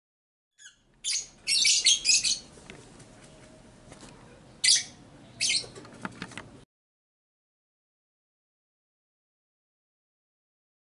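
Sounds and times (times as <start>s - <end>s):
birds chirping: 0.6s - 3.7s, 4.4s - 6.0s.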